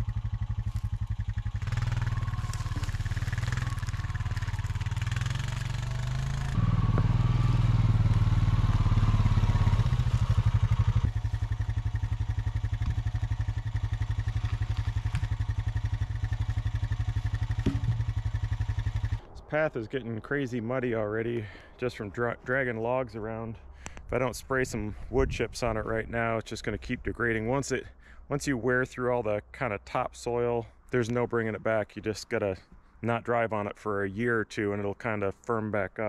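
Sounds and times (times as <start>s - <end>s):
vehicle engine running: 0.0s - 19.4s.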